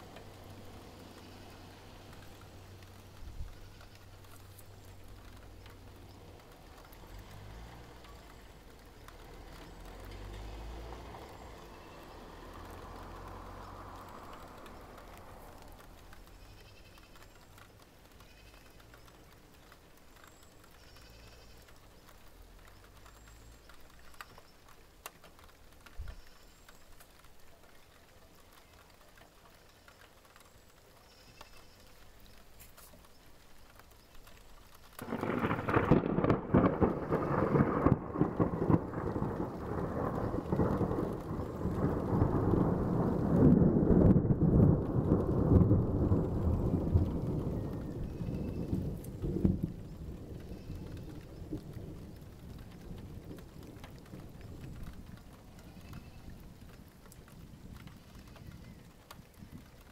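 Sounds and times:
light rain: 0:00.0 - 0:59.9
thunder rumbling: 0:34.9 - 0:59.9
loud close thunderclap: 0:35.0 - 0:55.2.

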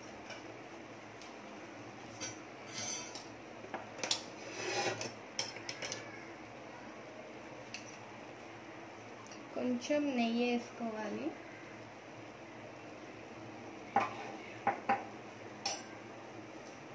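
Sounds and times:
steel cookware clinking and scraping: 0:02.2 - 0:03.3.

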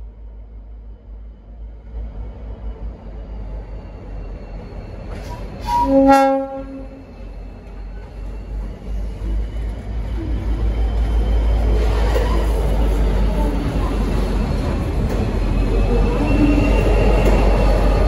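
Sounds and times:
locomotive horn blast: 0:05.6 - 0:07.0.

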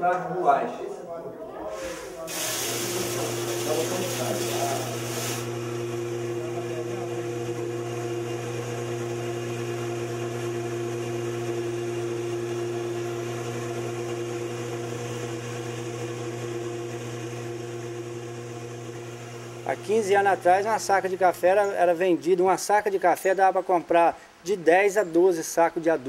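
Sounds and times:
bright hiss: 0:01.7 - 0:05.6
coffee grinder motor humming: 0:02.3 - 0:21.8.

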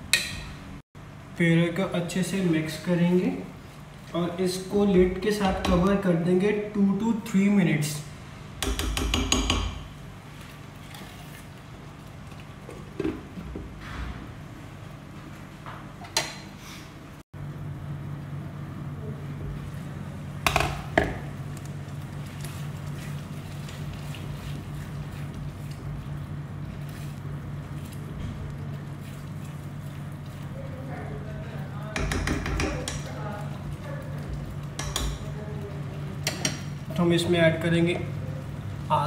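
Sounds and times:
steady low hum: 0:00.0 - 0:39.0
spatula stirring thick gravy: 0:22.0 - 0:30.6.

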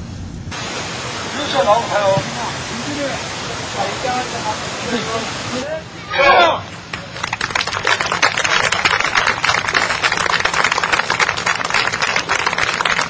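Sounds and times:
crowd applauding: 0:06.9 - 0:13.0.

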